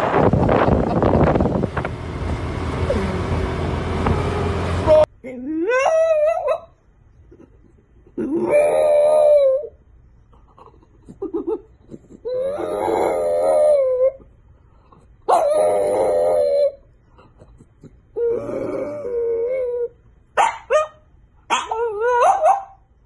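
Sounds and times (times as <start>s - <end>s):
dog yelping: 5.7s - 6.7s, 8.2s - 9.7s, 11.3s - 14.2s, 15.3s - 16.8s, 18.2s - 22.8s
dog howling: 8.3s - 9.8s, 12.3s - 14.2s, 15.3s - 16.8s, 18.2s - 20.0s, 21.5s - 22.7s.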